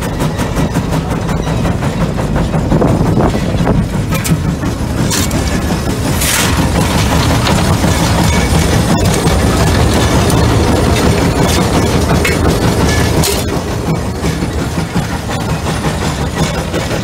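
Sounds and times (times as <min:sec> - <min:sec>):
rapid regular clanking: 0:00.0 - 0:17.0
steam traction engine running: 0:00.0 - 0:17.0.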